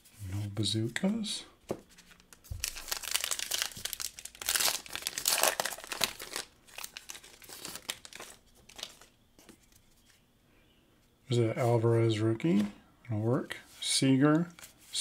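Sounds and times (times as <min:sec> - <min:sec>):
card pack wrapper crinkling and tearing: 0:01.9 - 0:09.2.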